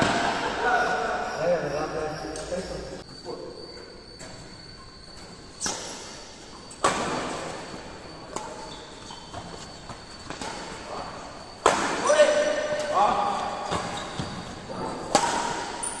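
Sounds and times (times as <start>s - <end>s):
rackets hitting shuttlecock echoing: 0.0s - 1.3s, 5.6s - 16.0s.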